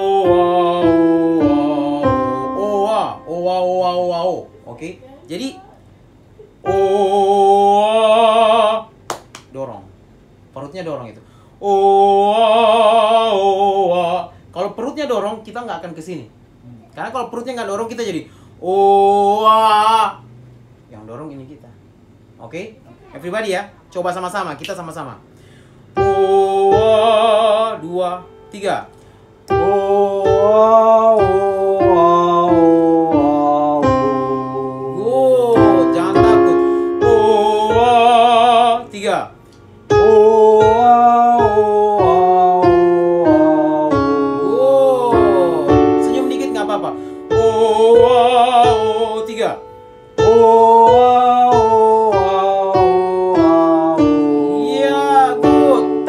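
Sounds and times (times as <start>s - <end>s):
person singing vocal exercise: 0.0s - 4.7s, 6.4s - 8.9s, 26.0s - 39.2s, 39.9s - 56.0s
piano chords: 0.0s - 4.8s, 6.5s - 9.0s, 25.9s - 56.0s.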